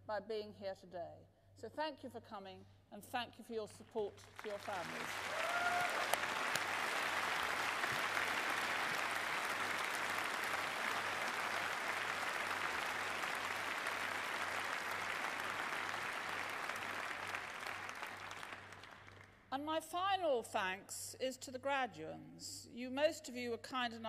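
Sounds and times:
audience applauding: 4.3 - 19.4.

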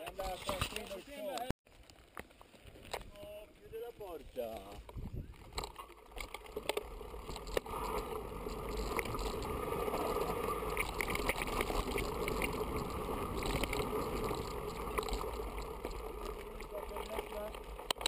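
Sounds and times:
bike tyres rolling on dirt: 0.0 - 18.0
bike clicks and rattles: 4.6 - 18.0.

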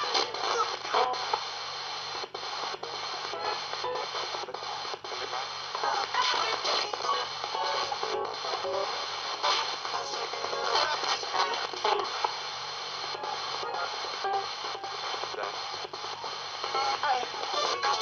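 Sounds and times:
fragments of broadcast music: 0.0 - 18.0
fragments of broadcast voices: 0.0 - 18.0
radio sweeping through stations: 0.0 - 18.0.

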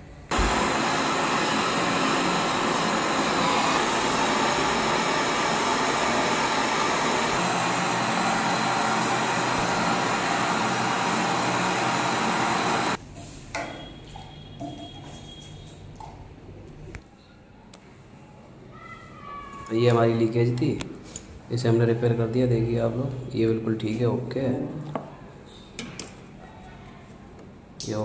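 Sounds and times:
gas torch flame hissing: 0.3 - 13.0.

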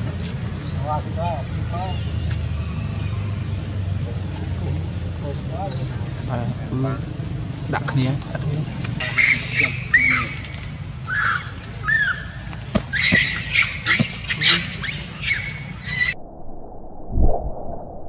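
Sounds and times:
young monkey screaming: 9.0 - 16.2.

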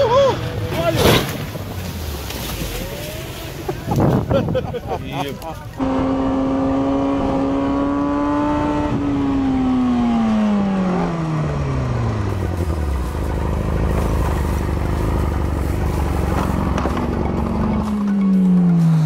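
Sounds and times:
motorcycle engine revving: 5.7 - 19.0.

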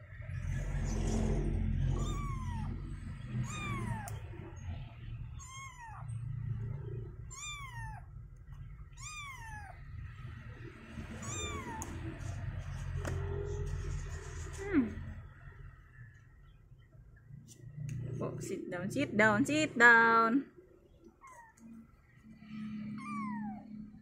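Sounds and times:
kitten mewing: 1.8 - 4.3, 5.4 - 6.1, 7.2 - 8.1, 9.0 - 9.8, 11.1 - 12.1, 22.9 - 23.7.

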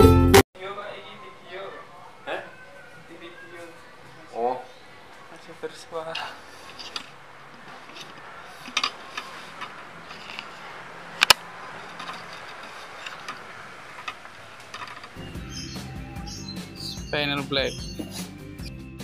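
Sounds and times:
music: 0.0 - 0.4, 15.2 - 19.0.

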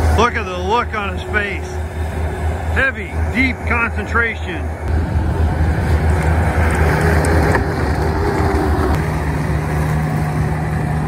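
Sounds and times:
track loader diesel engine: 0.0 - 11.0.

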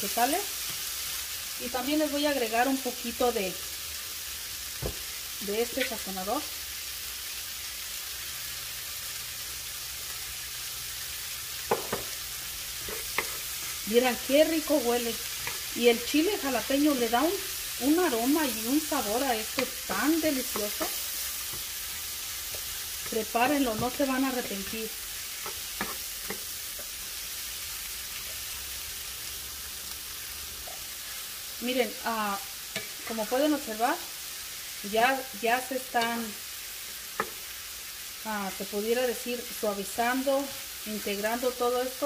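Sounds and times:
vegetables sizzling in oil: 0.0 - 42.0
wooden spatula scraping: 12.8 - 14.0, 22.5 - 26.9.

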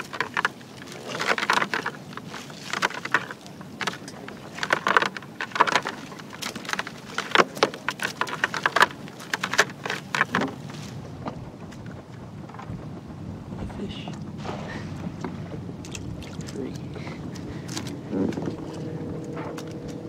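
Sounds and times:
clicks and patters into bucket: 0.0 - 10.9
water dripping: 15.0 - 18.0.

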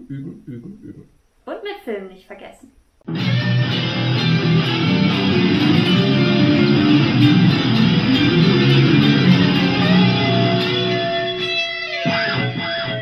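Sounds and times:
electric guitar music: 3.1 - 13.0.

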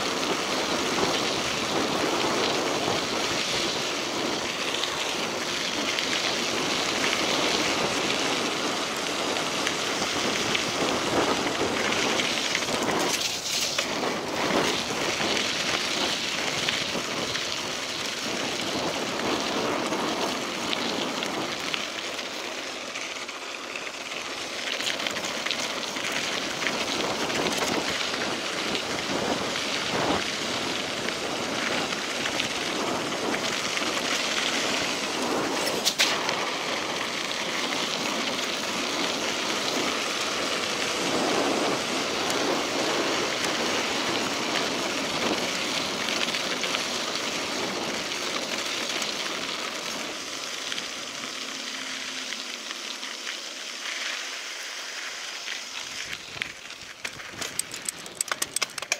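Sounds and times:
wind on microphone: 0.0 - 21.7, 26.5 - 48.6
bike tyres crunching on gravel: 0.0 - 58.9.

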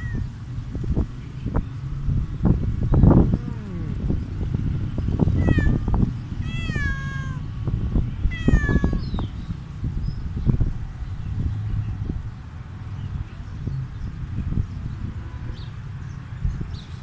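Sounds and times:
cat meowing: 0.0 - 0.3, 3.2 - 4.2, 5.2 - 7.5, 8.2 - 9.2
low bumps and rumble: 0.2 - 12.3.

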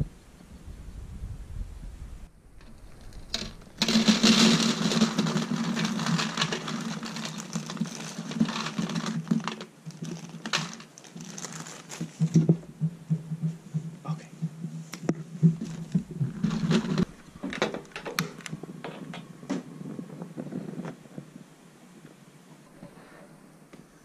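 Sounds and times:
plastic bag crinkling: 2.6 - 12.6, 15.6 - 17.2
dry kibble pouring into plastic bowl: 3.1 - 12.2.

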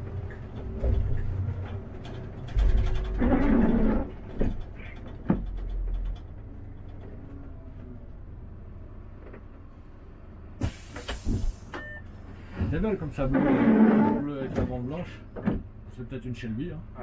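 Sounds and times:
bus engine and road rumble: 0.0 - 17.0
knocks and rattles: 0.1 - 7.2
loud air hiss: 10.6 - 11.8.

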